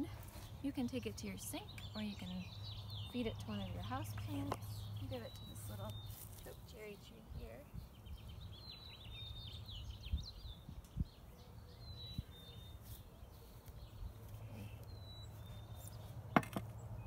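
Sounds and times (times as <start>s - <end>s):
small birds chirping: 0.0s - 17.0s
wind rumble on microphone: 7.0s - 12.7s.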